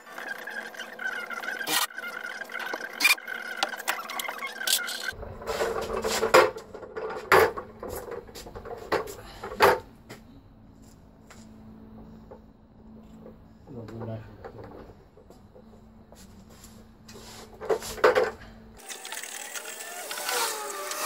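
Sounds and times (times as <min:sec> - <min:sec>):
casters rolling on concrete: 0:05.1 - 0:09.9.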